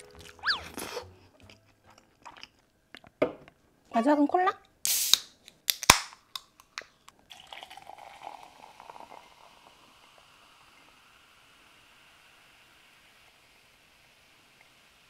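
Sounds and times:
can tab popping open: 4.8 - 6.9
soda poured into glass fizzing: 7.3 - 15.0.

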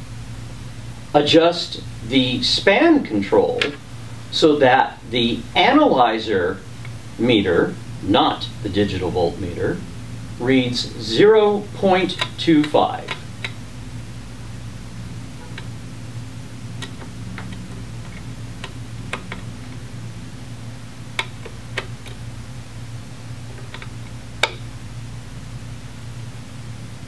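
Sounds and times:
steady low hum: 0.0 - 27.0
screwdriver ticking and clicking: 12.0 - 13.6, 16.8 - 19.8, 21.2 - 22.2.

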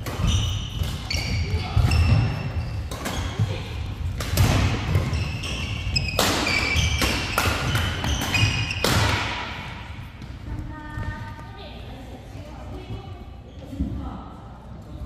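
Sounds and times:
shoe squeaks on court: 0.2 - 3.4, 5.0 - 8.9
racket striking shuttlecock: 6.0 - 9.8.

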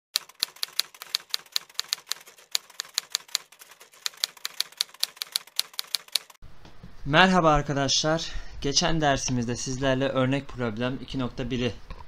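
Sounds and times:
typewriter keys clacking: 0.2 - 6.4.

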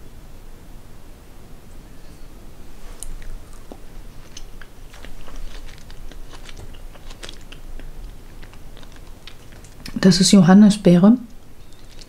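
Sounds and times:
person chewing gum: 2.8 - 10.0, 11.6 - 12.0.

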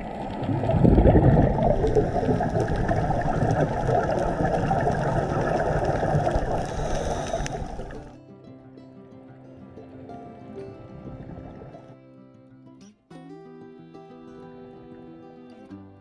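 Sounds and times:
underwater regulator bubbles: 0.0 - 8.1, 10.8 - 11.9.

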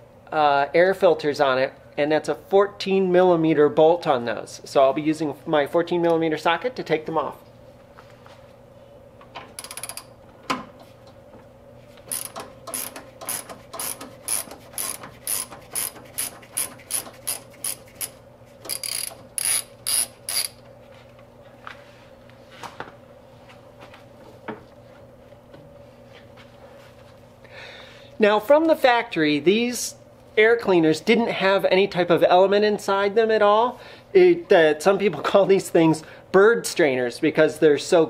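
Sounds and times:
ratchet wrench clicking: 9.6 - 10.1, 12.1 - 20.6.

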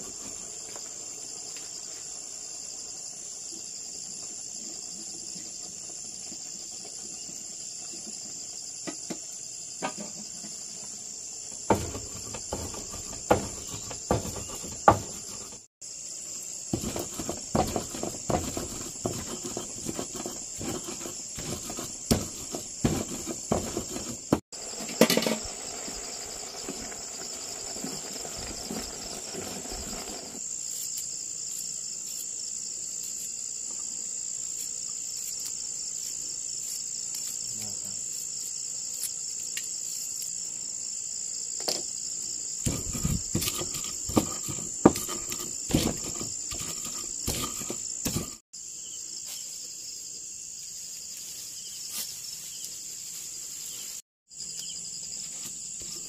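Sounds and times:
insect chorus trilling: 0.0 - 56.0
knocks and clatter: 11.6 - 15.6, 42.7 - 48.4.

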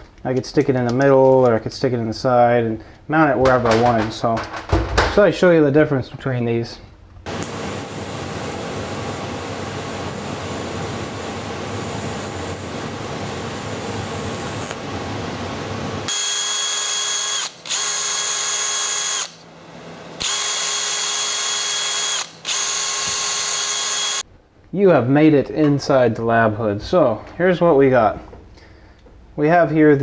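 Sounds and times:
welding arc crackling hiss: 7.3 - 14.8, 16.1 - 19.5, 20.2 - 24.2
cordless drill whining: 16.1 - 19.4, 20.2 - 24.2.

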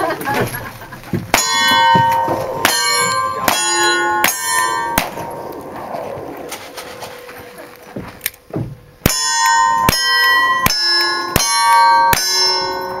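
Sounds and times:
steel plate target ringing: 1.3 - 7.3, 9.0 - 13.0.

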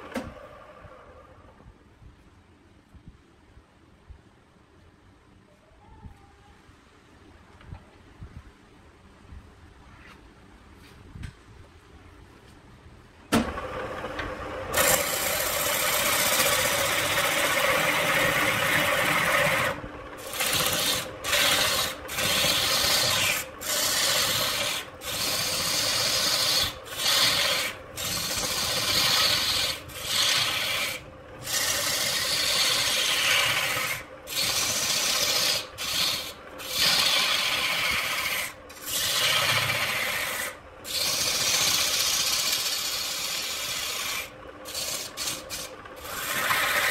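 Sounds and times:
wood lathe starting: 13.4 - 46.9
turning tool scraping wood: 14.7 - 46.9.

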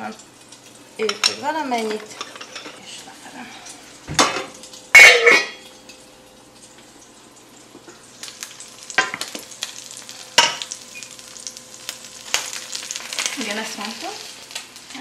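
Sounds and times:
fish sizzling in a pan: 0.0 - 15.0
metal pan lid clanking: 4.2 - 5.7.

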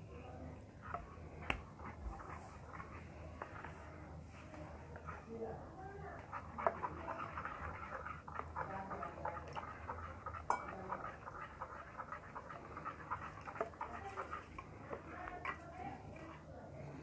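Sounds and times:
spoon stirring thick batter: 0.0 - 17.0.

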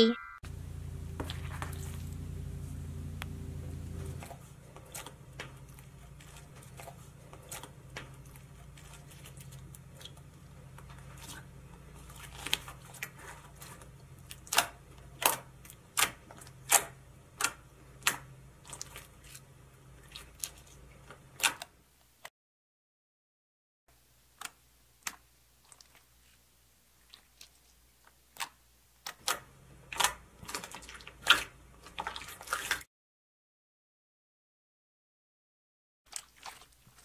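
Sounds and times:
low steady hum: 0.0 - 21.4.

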